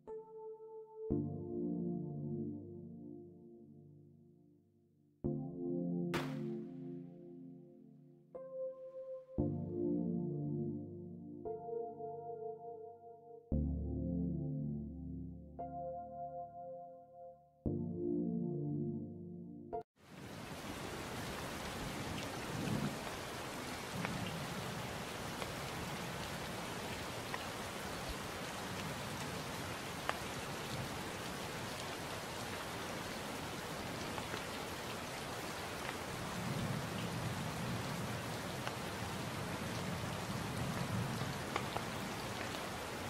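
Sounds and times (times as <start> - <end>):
steady rain: 20.0 - 43.0.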